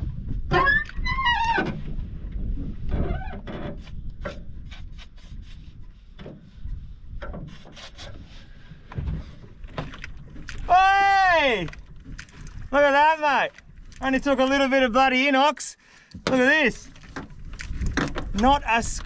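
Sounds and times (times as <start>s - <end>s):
handling knocks and clicks: 16.1s - 19.0s.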